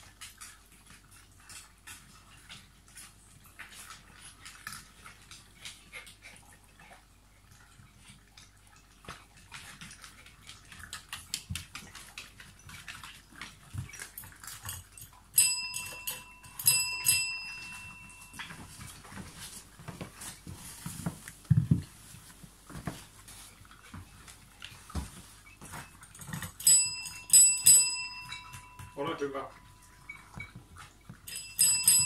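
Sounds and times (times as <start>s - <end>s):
dogs crunching kibble: 0.0s - 31.7s
service bell dinging: 15.4s - 18.5s, 26.6s - 30.3s, 31.3s - 32.0s.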